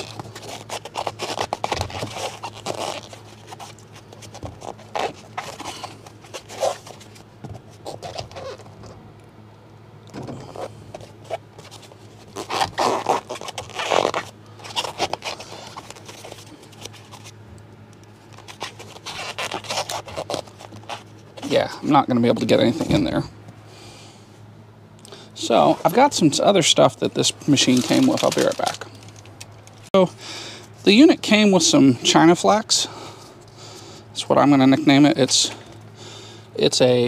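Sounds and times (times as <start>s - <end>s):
foam scraping and rubbing: 0.0s - 8.8s, 10.5s - 17.4s, 18.2s - 21.7s, 27.4s - 29.1s
steady low hum: 0.0s - 37.0s.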